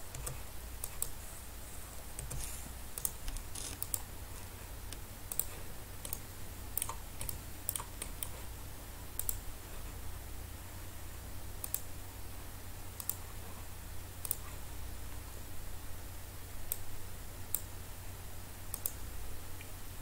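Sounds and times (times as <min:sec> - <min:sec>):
steady low hum: 0:00.0 - 0:20.0
computer mouse clicks: 0:00.1 - 0:01.2, 0:02.1 - 0:04.1, 0:04.9 - 0:08.5, 0:09.2 - 0:09.4, 0:11.6 - 0:11.9, 0:13.0 - 0:13.2, 0:14.2 - 0:14.5, 0:16.7 - 0:16.9, 0:18.7 - 0:19.0.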